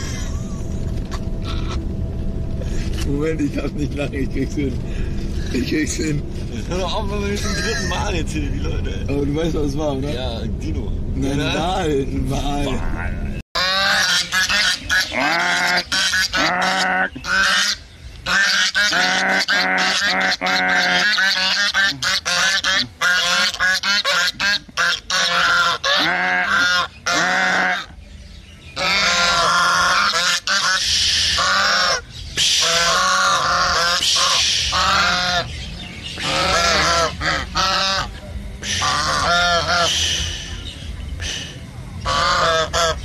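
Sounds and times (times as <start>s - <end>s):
geese honking: 1.1s - 1.9s, 6.8s - 8.1s, 13.6s - 28.0s, 28.6s - 43.0s.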